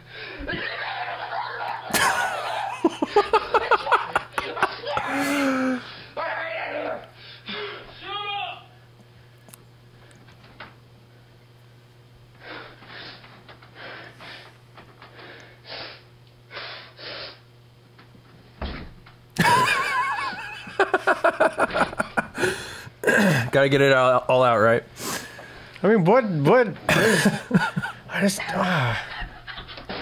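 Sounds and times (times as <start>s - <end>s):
men laughing loudly: 0.4s - 5.9s, 19.4s - 23.5s, 26.9s - 30.0s
boy panting and gasping: 4.9s - 6.0s, 22.2s - 23.5s.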